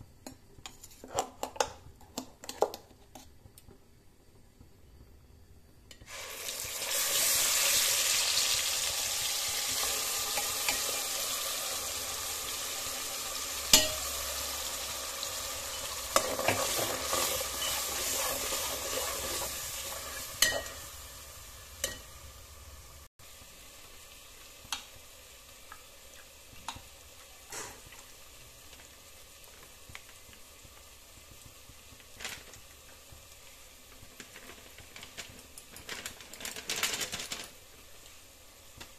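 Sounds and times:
puree sizzling in hot oil: 0:05.4 - 0:38.9
metal spoon clinking on pot: 0:13.7 - 0:14.1, 0:17.5 - 0:17.9, 0:20.4 - 0:20.8.

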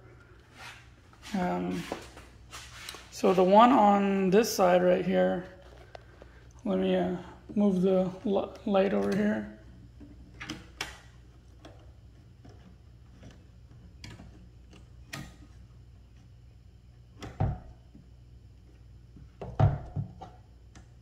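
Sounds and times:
low steady hum: 0:00.0 - 0:21.0
clicks and knocks of handling: 0:07.4 - 0:16.4.

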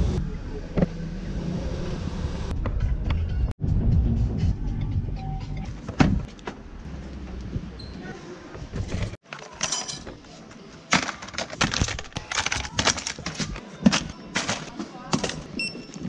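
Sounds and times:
tools clattering in plastic basket: 0:09.2 - 0:10.2, 0:10.9 - 0:15.5.

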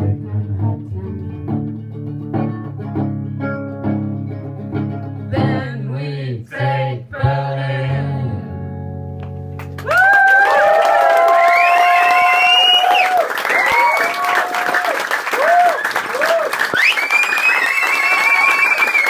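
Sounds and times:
person singing: 0:00.0 - 0:01.6, 0:05.2 - 0:08.6
plucked strings: 0:00.0 - 0:06.0
low bass line: 0:00.0 - 0:09.8.

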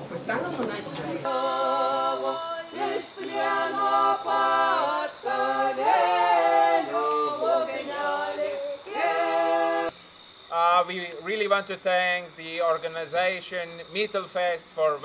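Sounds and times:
voices singing a cappella: 0:00.6 - 0:11.4.

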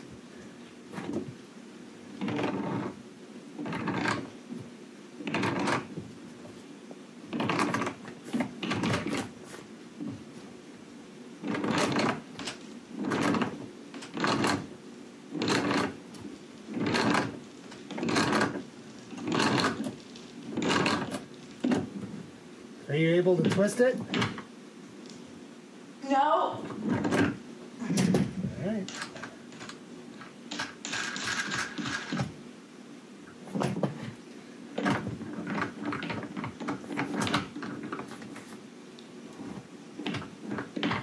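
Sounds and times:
nut grinding down a bolt: 0:03.6 - 0:04.3.

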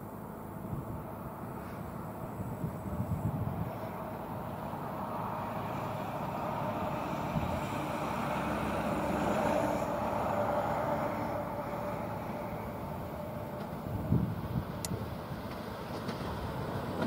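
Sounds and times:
faint steady whine: 0:00.0 - 0:08.9
train running on rails: 0:00.0 - 0:17.0.

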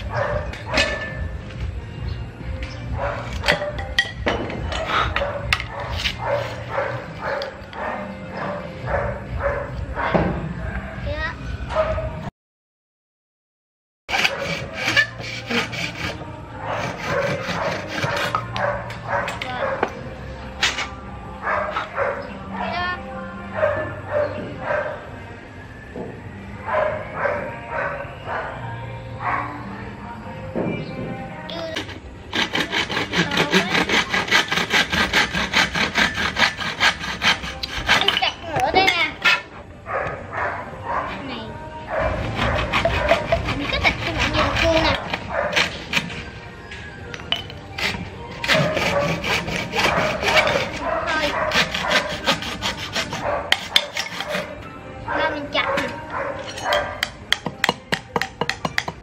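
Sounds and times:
hacksaw cutting bamboo: 0:04.7 - 0:07.3, 0:14.1 - 0:18.6, 0:20.6 - 0:21.0, 0:31.5 - 0:38.3, 0:42.1 - 0:46.4, 0:47.3 - 0:54.6, 0:56.4 - 0:59.0.

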